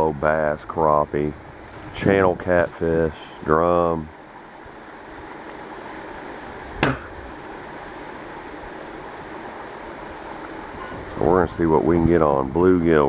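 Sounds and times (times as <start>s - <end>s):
steady rushing hiss: 0.0s - 13.0s.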